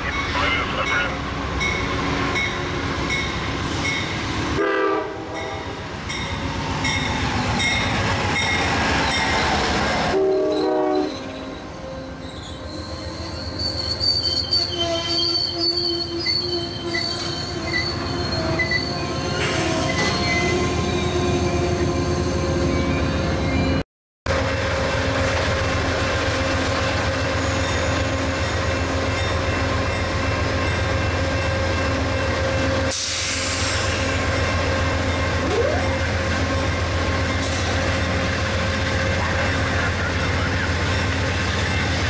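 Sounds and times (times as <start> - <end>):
train cars rumbling past: 0.0 - 42.0
train horn: 4.5 - 5.7, 10.1 - 12.1
high wheel squeal: 10.5 - 23.8.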